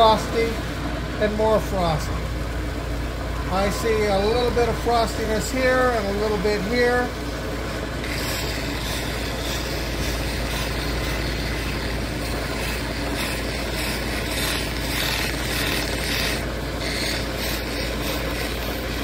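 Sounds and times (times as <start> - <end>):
machine motor and wheels running: 0.0 - 19.0
stone rubbing on polishing wheel: 8.0 - 19.0.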